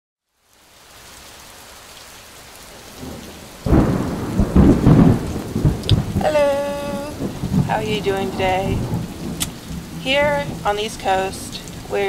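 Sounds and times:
steady rain: 0.2s - 12.0s
thunderclap rumbling: 2.7s - 12.0s.

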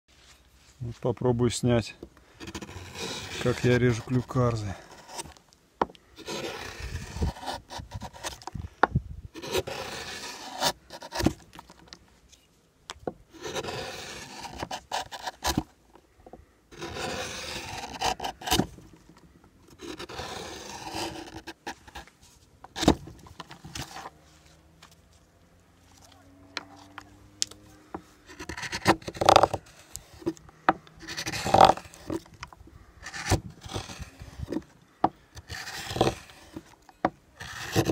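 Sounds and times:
knife scraping wood: 2.4s - 8.6s, 9.4s - 12.5s, 13.3s - 15.8s, 16.7s - 25.0s, 27.9s - 37.9s.

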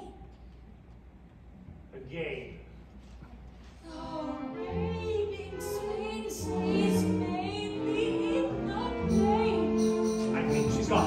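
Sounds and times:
woman singing: 3.9s - 10.0s
orchestra playing show tune: 4.7s - 11.0s.

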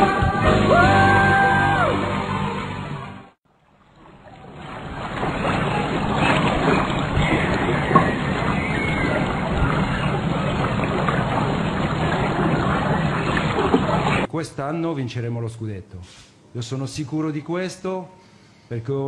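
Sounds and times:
hot tub water churning: 3.4s - 14.3s.

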